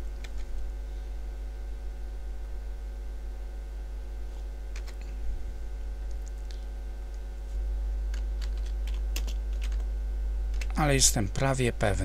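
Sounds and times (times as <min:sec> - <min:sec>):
steady electrical hum: 0:00.0 - 0:12.0
keyboard keystrokes and clicks: 0:04.7 - 0:05.1, 0:08.1 - 0:09.9, 0:10.5 - 0:10.8.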